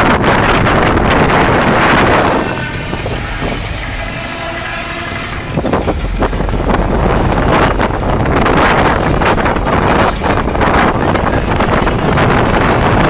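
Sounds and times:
wind buffeting microphone: 0.0 - 13.0
boat horn blast: 0.2 - 12.6.

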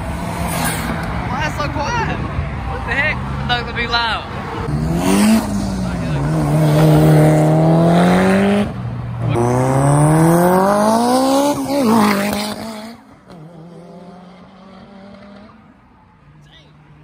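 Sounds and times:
car accelerating through gears: 4.7 - 15.6.

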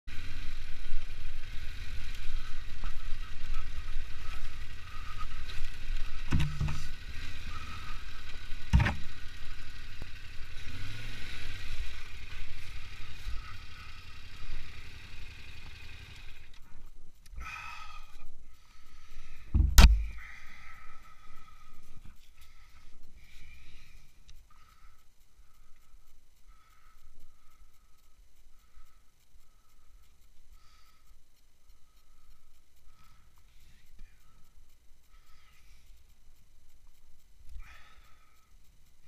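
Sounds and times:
motorbike engine at low speed: 0.1 - 39.0
bike clattering over rough ground: 2.6 - 9.5
loud knock: 19.6 - 20.1.

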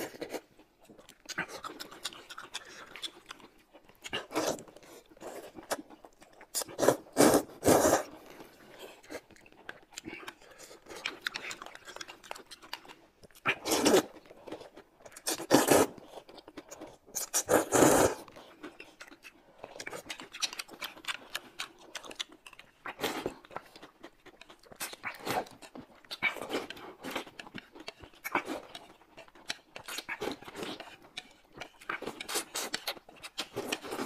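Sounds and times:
chewing: 0.0 - 34.0
noodles slurped from a bowl: 6.6 - 8.2, 13.5 - 14.2, 15.3 - 16.0, 17.2 - 18.3.

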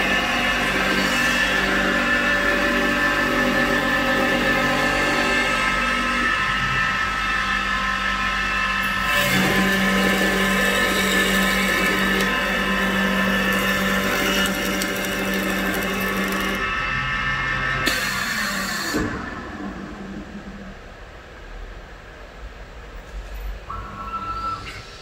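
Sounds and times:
wood cutting noise: 0.0 - 19.2
wood lathe motor whine: 0.0 - 19.3.

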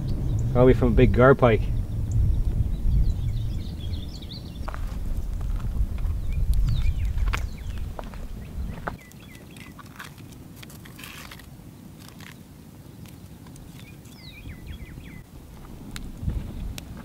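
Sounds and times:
low rumble: 0.0 - 9.0
wood fire crackling and popping: 0.0 - 12.4, 15.3 - 17.0
bird whistling and chirping: 1.7 - 4.7, 6.2 - 7.8, 13.8 - 15.2.

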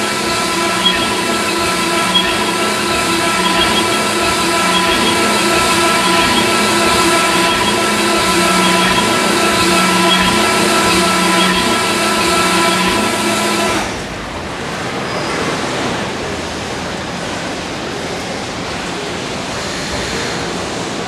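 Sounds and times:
machine whine: 0.0 - 14.4.

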